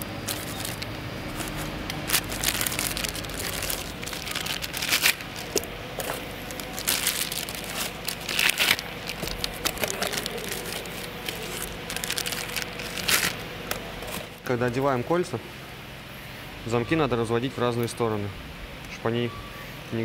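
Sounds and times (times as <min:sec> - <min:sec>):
plastic bags crinkling: 0:00.0 - 0:14.9.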